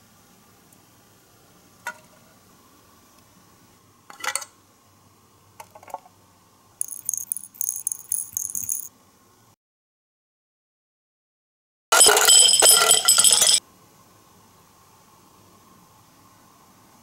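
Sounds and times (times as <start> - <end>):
small hard pieces clicking: 6.8 - 8.9
tiny pieces clinking and rattling: 6.8 - 8.9, 12.0 - 13.6.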